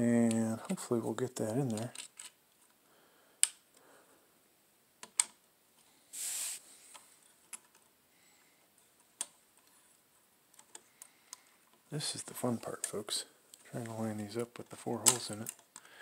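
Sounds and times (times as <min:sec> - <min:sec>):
short hiss: 0:06.1 - 0:06.9.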